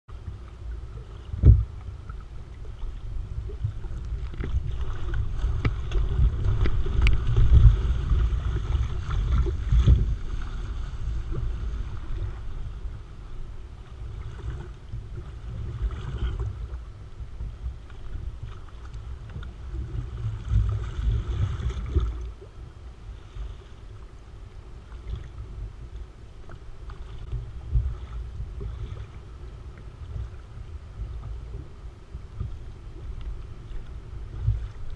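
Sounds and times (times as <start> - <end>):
water washing along hull: 0.1 - 34.9
wind buffeting microphone: 0.2 - 22.4
paddle splashing in water: 0.3 - 12.9.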